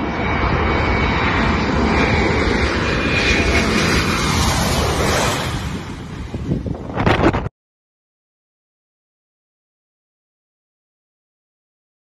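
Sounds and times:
jet engines roaring overhead: 0.0s - 7.5s.

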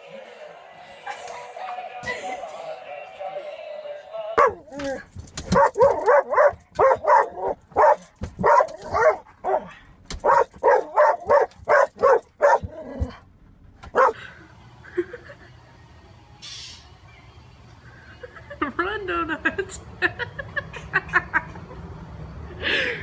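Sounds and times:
dog barking: 4.4s - 13.2s, 13.9s - 14.2s.

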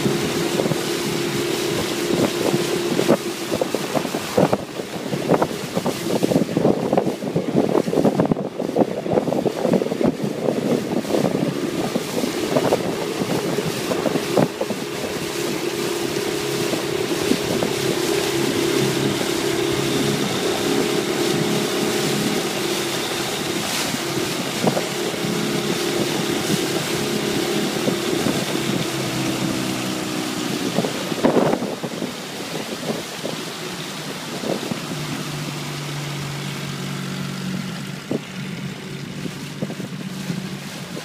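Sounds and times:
motorboat engine running: 0.0s - 41.0s
water rushing past hull: 0.0s - 41.0s
wind buffeting microphone: 0.0s - 41.0s.

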